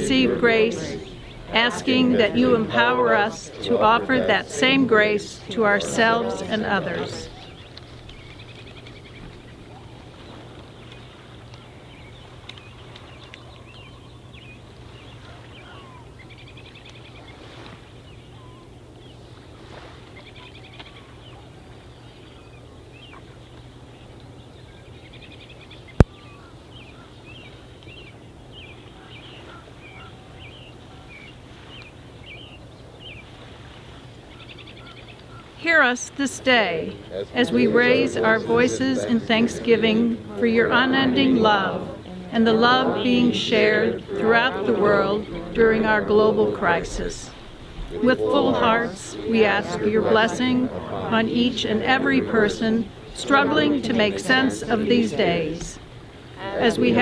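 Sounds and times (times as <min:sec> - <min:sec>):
birds chirping: 0:00.0 - 0:57.0
steady low hum: 0:35.7 - 0:57.0.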